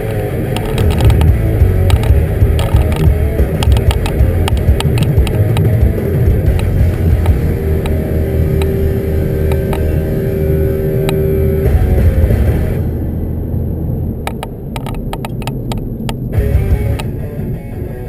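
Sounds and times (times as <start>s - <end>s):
clicks: 0.0s - 8.8s, 9.4s - 10.2s, 14.3s - 16.3s
car engine and tyre rumble: 0.0s - 18.0s
steady tone: 0.0s - 18.0s.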